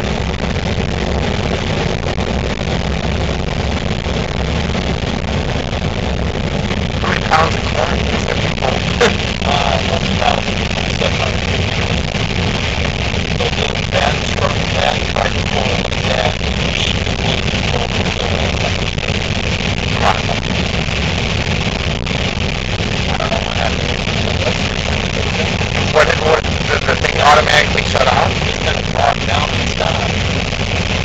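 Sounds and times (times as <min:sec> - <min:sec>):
combine engine and threshing drone: 0:00.0 - 0:31.0.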